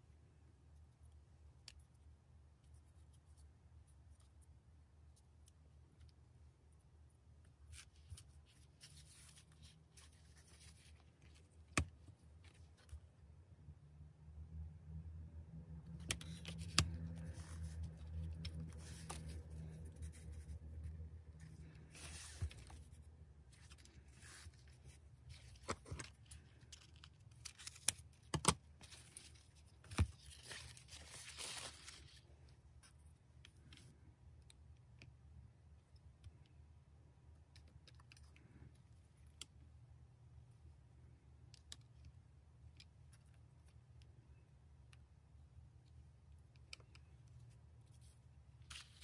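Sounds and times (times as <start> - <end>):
ribbon rustling and scraping: 6.8 - 13.1, 15.8 - 34.0, 46.8 - 49.0.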